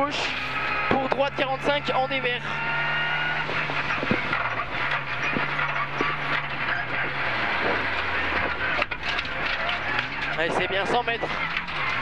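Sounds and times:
car engine from inside cabin: 0:00.0 - 0:12.0
road noise: 0:00.0 - 0:12.0
knocks and rattles: 0:03.3 - 0:12.0.

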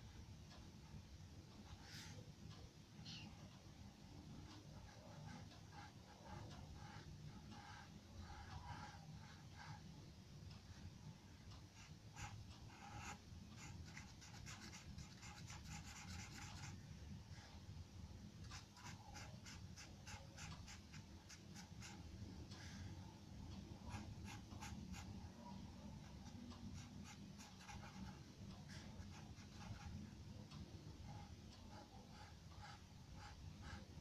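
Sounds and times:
faint low room hum: 0:00.0 - 0:34.0
pencil scratching on paper: 0:04.8 - 0:09.8, 0:11.7 - 0:16.8, 0:18.4 - 0:22.8, 0:23.8 - 0:30.2, 0:31.1 - 0:34.0.

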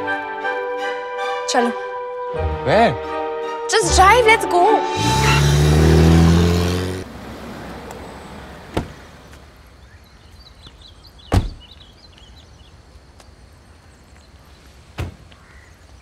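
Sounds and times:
car engine revving: 0:04.9 - 0:09.1
birds chirping: 0:04.9 - 0:16.0
car door slamming: 0:08.7 - 0:09.1, 0:11.3 - 0:11.7.

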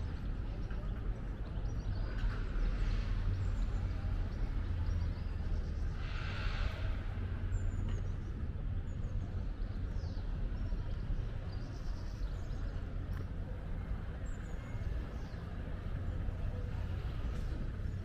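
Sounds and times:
low rumble of traffic: 0:00.0 - 0:18.0.

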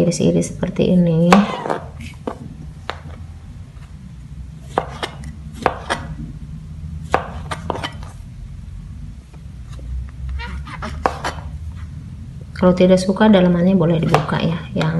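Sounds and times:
knife tapping cutting board: 0:04.7 - 0:06.1, 0:07.1 - 0:08.0, 0:10.9 - 0:11.4.

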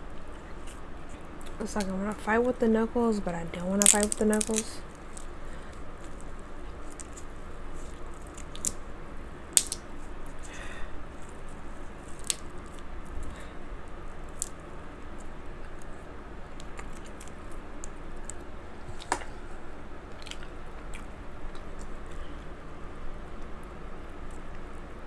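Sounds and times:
low fan hum: 0:00.0 - 0:25.0
wet chewing and squishing: 0:20.1 - 0:22.2.

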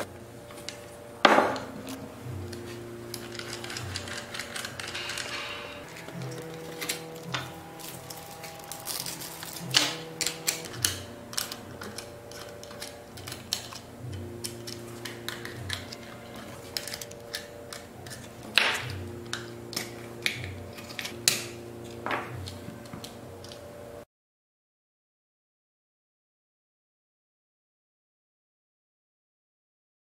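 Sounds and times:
background music: 0:00.0 - 0:24.1
plastic and metal parts clicking: 0:01.5 - 0:23.6.

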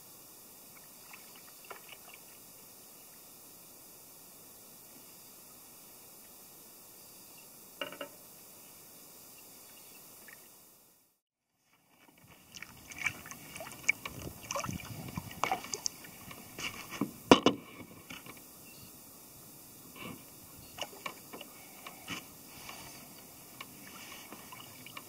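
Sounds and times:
faint steady hiss: 0:00.0 - 0:25.0
water splashing: 0:00.7 - 0:02.4, 0:12.2 - 0:17.0, 0:20.8 - 0:21.5, 0:22.6 - 0:25.0
paddle knocking on canoe hull: 0:12.9 - 0:17.6.

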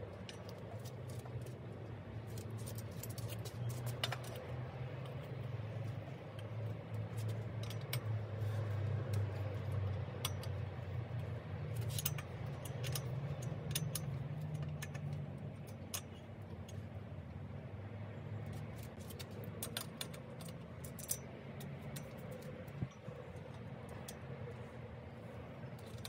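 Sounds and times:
metallic clicks and clinks: 0:02.3 - 0:16.9, 0:18.5 - 0:24.6.

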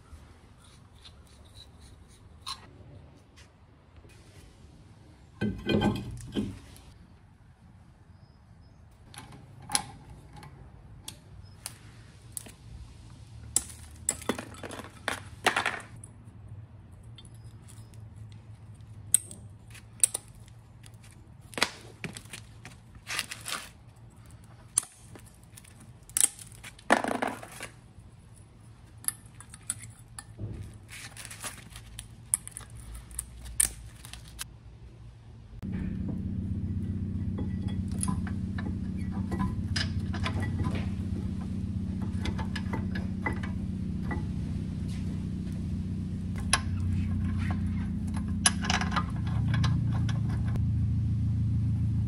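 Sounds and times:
metallic clicks and scrapes: 0:00.5 - 0:02.7, 0:22.4 - 0:34.5, 0:46.3 - 0:50.6.

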